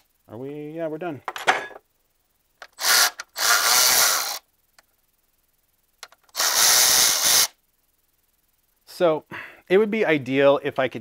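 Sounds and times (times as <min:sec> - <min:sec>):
electric ratchet spinning bolts: 0:02.6 - 0:04.4, 0:06.1 - 0:07.6.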